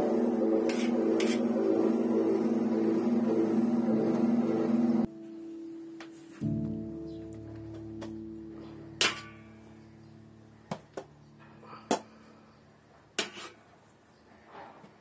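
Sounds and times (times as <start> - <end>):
plucked guitar chord: 5.1 - 10.7.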